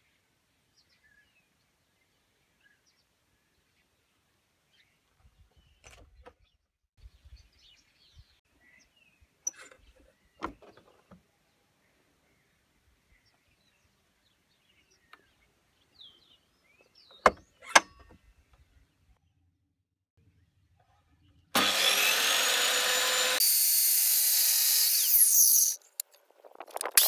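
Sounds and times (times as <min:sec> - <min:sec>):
small birds chirping: 0:00.0 - 0:19.4.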